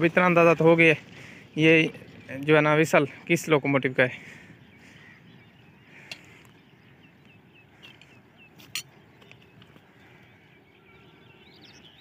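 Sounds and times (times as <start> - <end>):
small bird chirping: 4.7 - 12.0.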